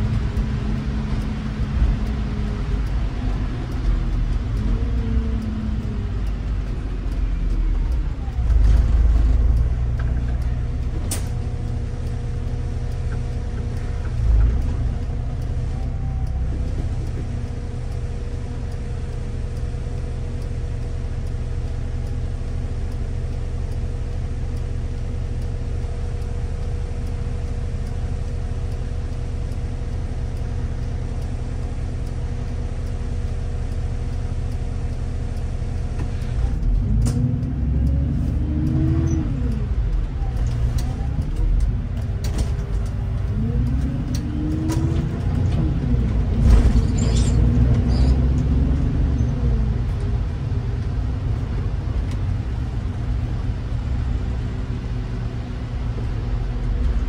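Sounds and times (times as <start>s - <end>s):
bus engine rumble and whine: 0.0s - 57.0s
sharp click: 11.0s - 11.4s, 36.0s - 37.3s.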